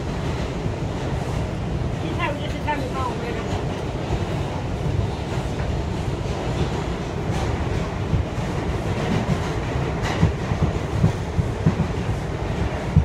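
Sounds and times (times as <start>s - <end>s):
subway wheels rumbling on rails: 0.0s - 13.0s
train wheels clacking: 5.2s - 13.0s.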